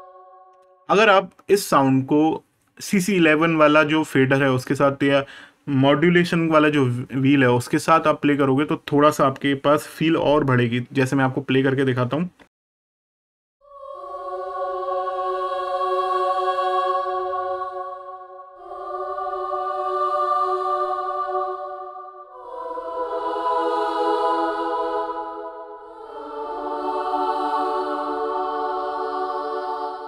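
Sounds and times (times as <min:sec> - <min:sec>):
children's choir singing chords: 0:00.0 - 0:02.2, 0:13.6 - 0:30.0.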